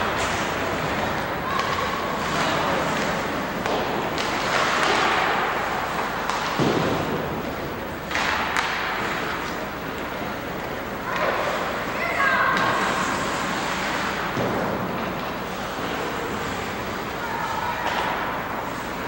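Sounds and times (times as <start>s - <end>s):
hockey sticks and puck knocking: 0.0s - 10.2s
arena crowd hubbub: 0.0s - 19.0s
skates scraping on ice: 12.6s - 19.0s.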